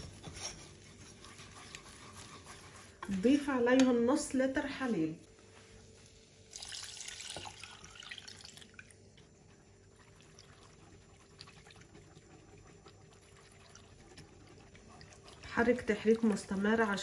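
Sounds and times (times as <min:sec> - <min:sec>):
whisk swishing and ticking: 0:00.0 - 0:03.3, 0:09.5 - 0:17.0
milk pouring into saucepan: 0:06.4 - 0:16.6.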